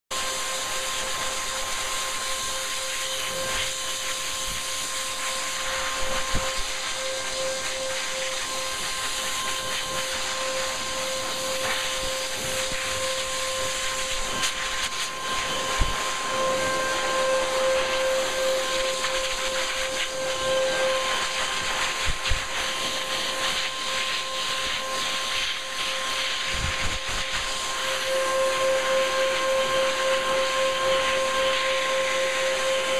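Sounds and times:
dog dryer blowing: 0:00.1 - 0:32.9.

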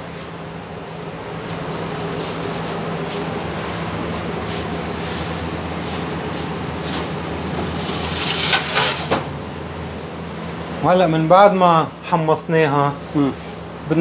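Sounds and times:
kitchen equipment humming: 0:00.0 - 0:14.0
crackly scraping noise: 0:06.8 - 0:09.3.

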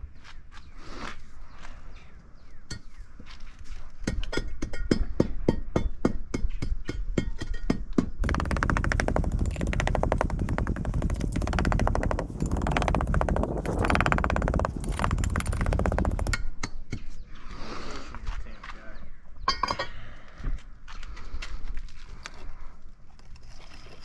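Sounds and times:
hand tamper pounding sand: 0:08.2 - 0:16.6.

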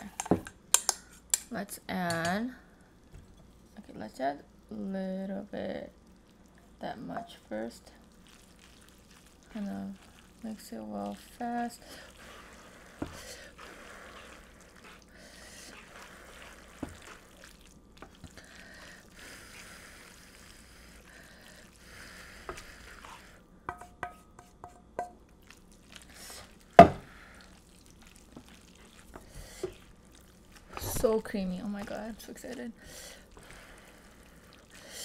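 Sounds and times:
spatula stirring and scraping: 0:07.1 - 0:35.0.

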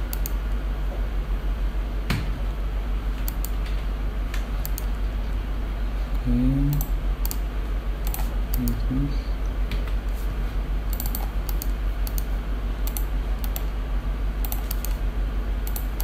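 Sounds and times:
steady low hum: 0:00.0 - 0:16.0
computer keyboard clicks: 0:00.1 - 0:00.4, 0:03.2 - 0:03.7, 0:04.6 - 0:04.9, 0:06.7 - 0:07.4, 0:08.0 - 0:08.8, 0:10.9 - 0:12.3, 0:12.9 - 0:13.7, 0:14.4 - 0:15.0, 0:15.6 - 0:16.0
mouse clicks: 0:00.1 - 0:00.4, 0:03.2 - 0:03.6, 0:04.6 - 0:04.9, 0:10.9 - 0:12.3, 0:12.9 - 0:13.7, 0:14.4 - 0:15.0.

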